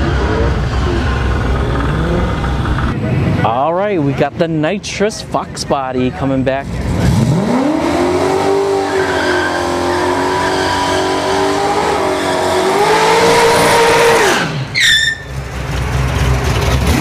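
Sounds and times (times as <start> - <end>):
car engine revving: 0.0 - 4.7, 6.6 - 17.0
tires spinning: 6.7 - 17.0
high squeal falling in pitch: 8.9 - 11.5, 13.3 - 15.4.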